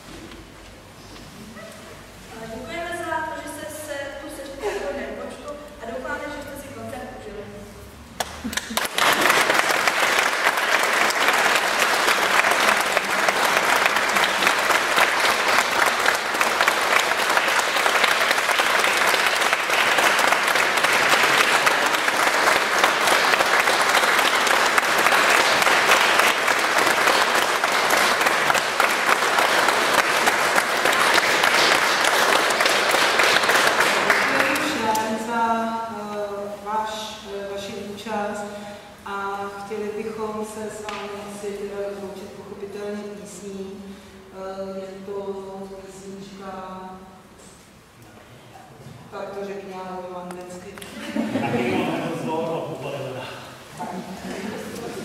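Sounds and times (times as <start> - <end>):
audience applauding: 8.2 - 35.0.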